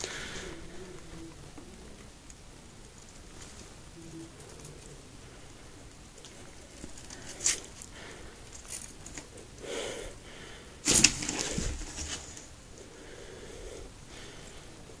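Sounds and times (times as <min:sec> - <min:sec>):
rustling in cardboard box: 0:10.8 - 0:12.5.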